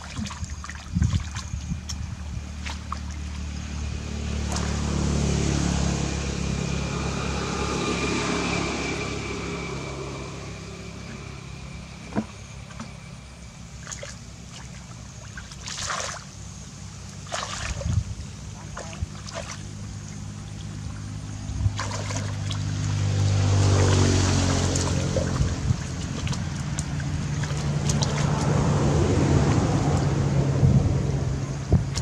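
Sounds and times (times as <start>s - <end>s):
hands splashing in muddy water: 0.0s - 5.1s, 13.8s - 16.3s, 17.1s - 21.0s, 21.6s - 30.1s, 31.8s - 32.0s
engine passing by: 0.0s - 32.0s.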